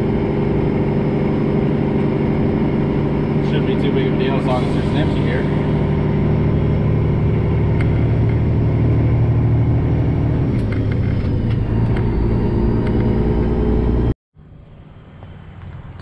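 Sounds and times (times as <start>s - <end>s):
diesel truck engine running: 0.0s - 16.0s.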